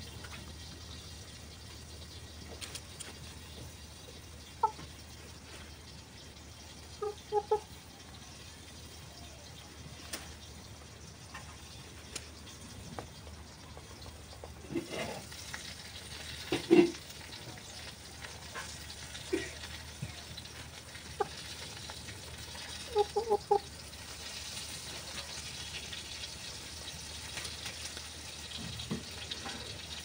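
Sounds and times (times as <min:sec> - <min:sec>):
clicks of pecking at dirt: 0:02.5 - 0:03.3
hen clucking softly: 0:03.0 - 0:05.8, 0:06.4 - 0:08.4, 0:22.5 - 0:23.8.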